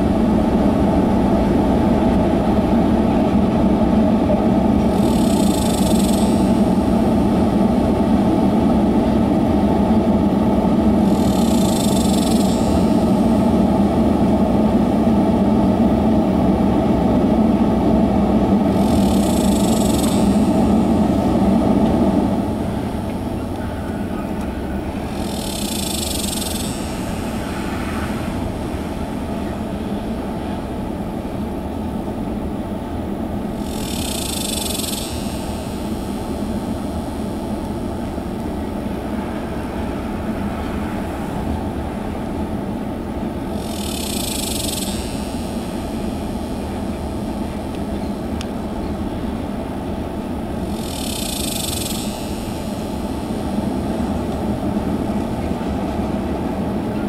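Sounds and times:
freight train wheels rumbling: 0.0s - 57.0s
high hiss: 4.9s - 8.9s, 10.9s - 15.1s, 18.6s - 32.5s, 33.3s - 56.7s.

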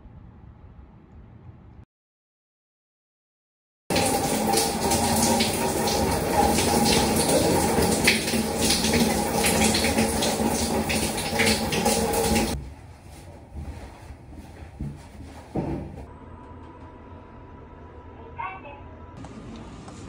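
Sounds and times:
shower spray running: 3.9s - 12.6s
water splashing on floor: 3.9s - 12.6s.

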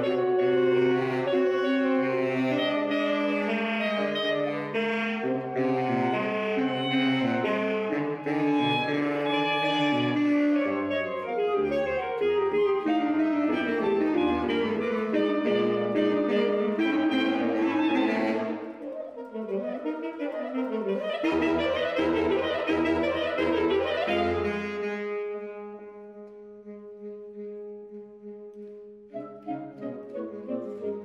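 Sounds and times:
saxophone quartet playing: 0.0s - 31.0s.

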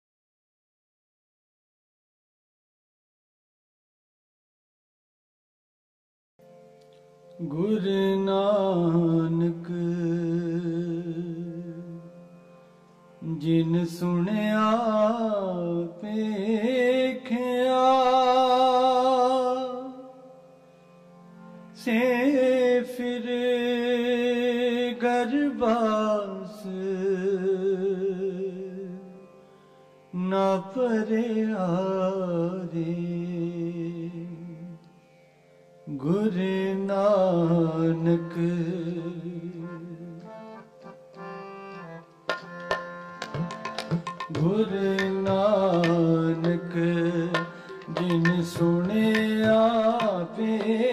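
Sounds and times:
harmonium: 6.4s - 50.9s
tabla strokes: 42.2s - 50.9s.

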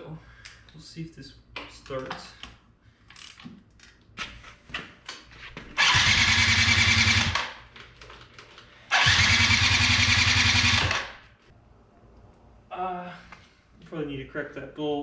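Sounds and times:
electric starter cranking engine: 5.8s - 7.5s, 8.9s - 11.2s.

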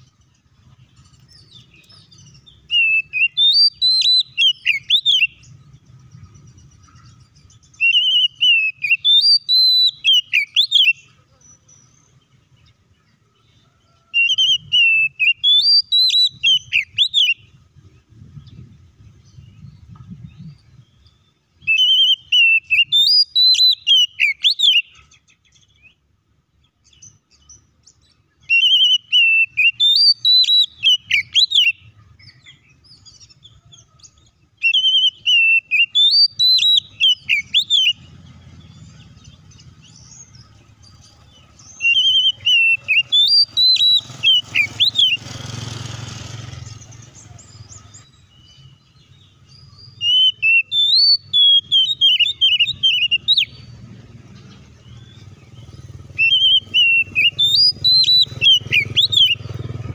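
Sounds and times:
bird singing whistled phrases: 1.4s - 5.5s, 7.5s - 11.1s, 14.2s - 17.5s, 19.3s - 25.1s, 28.4s - 33.4s, 34.6s - 38.1s, 41.6s - 45.3s, 47.2s - 53.8s, 54.9s - 59.7s.

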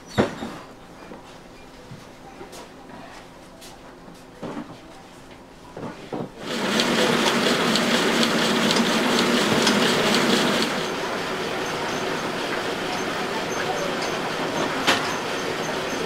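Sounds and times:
machine running with fast rattle: 6.4s - 16.0s.

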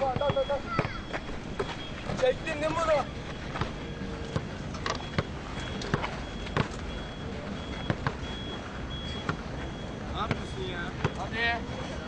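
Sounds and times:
basketball bouncing on hard ground: 0.0s - 6.9s, 7.6s - 8.4s, 9.2s - 9.5s, 10.2s - 11.3s
steady background noise: 0.0s - 12.0s.

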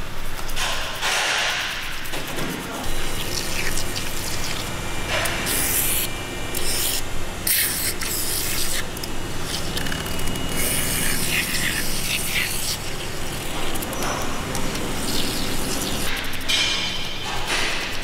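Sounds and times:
gloved hand rubbing metal: 9.5s - 13.8s.

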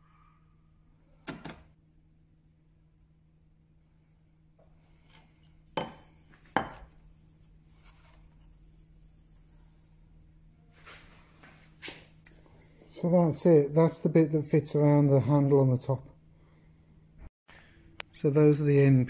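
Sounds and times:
chisel knocking on workbench: 5.8s - 6.0s, 6.6s - 6.9s.

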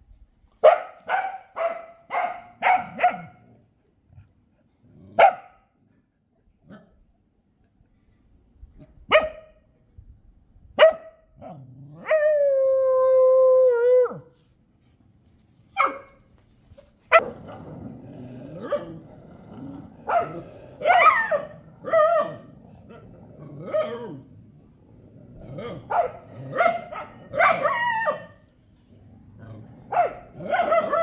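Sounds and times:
dogs barking: 0.6s - 3.4s, 5.2s - 5.6s, 17.1s - 17.6s, 20.0s - 22.5s, 25.7s - 28.3s, 29.9s - 31.0s
dog howling: 18.6s - 22.5s.

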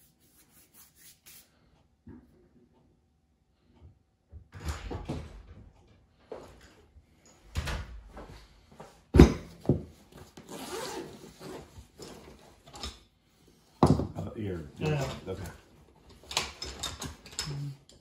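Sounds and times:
hand tools clicking and knocking: 14.8s - 18.0s.

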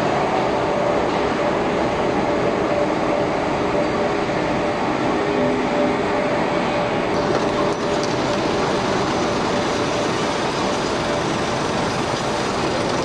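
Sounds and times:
mill machinery rumble and rattle: 6.0s - 13.0s.

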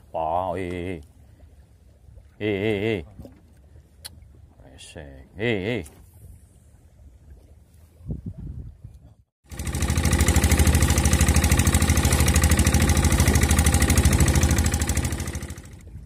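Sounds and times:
boat engine knocking: 9.5s - 16.0s.

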